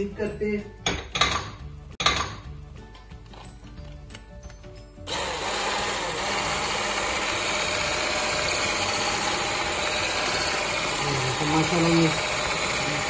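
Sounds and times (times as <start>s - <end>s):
electric mixer running: 5.1s - 13.0s.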